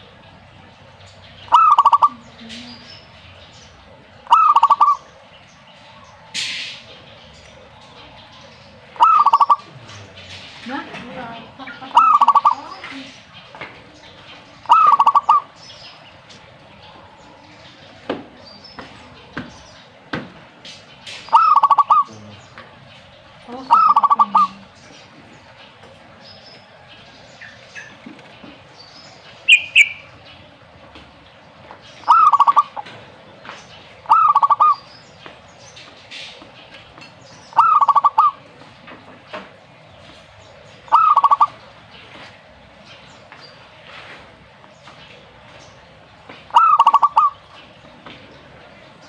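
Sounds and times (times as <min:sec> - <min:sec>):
small birds chirping: 0:00.0 - 0:49.0
dove cooing: 0:01.5 - 0:02.9, 0:04.2 - 0:05.1, 0:08.7 - 0:13.2, 0:14.6 - 0:15.6, 0:21.3 - 0:22.3, 0:23.7 - 0:24.8, 0:32.1 - 0:32.9, 0:34.0 - 0:34.9, 0:37.5 - 0:38.6, 0:40.9 - 0:41.7, 0:46.5 - 0:47.5.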